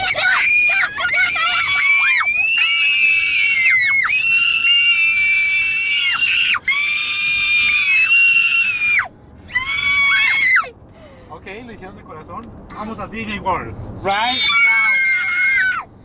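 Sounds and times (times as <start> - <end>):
girls screaming: 0.0 - 10.7, 14.2 - 15.9.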